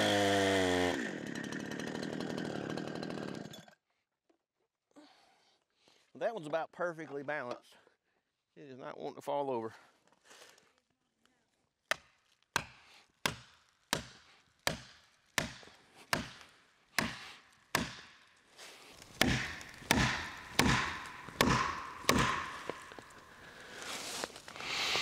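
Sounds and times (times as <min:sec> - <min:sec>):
hammer striking wedge in wood: 0:17.0 - 0:17.2, 0:17.8 - 0:18.1, 0:19.2 - 0:23.2.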